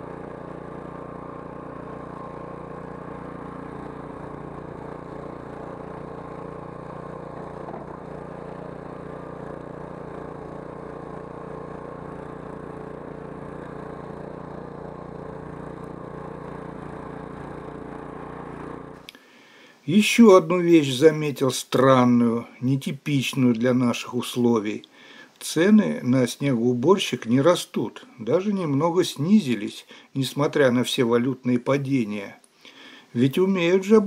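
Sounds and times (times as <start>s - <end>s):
snowblower engine running: 0.0s - 19.7s.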